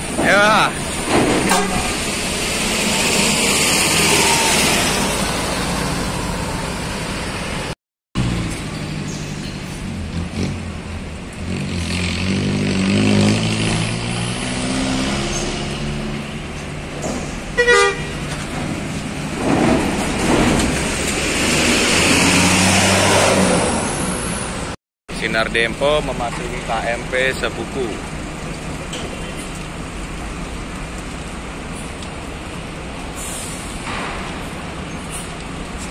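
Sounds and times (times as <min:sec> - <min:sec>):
buses driving slowly past: 0:00.0 - 0:35.9
bus horn toot: 0:01.5 - 0:02.0, 0:17.6 - 0:18.3.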